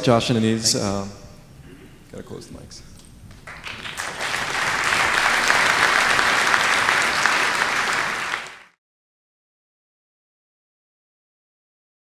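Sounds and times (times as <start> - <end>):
audience applauding: 3.3 - 8.8.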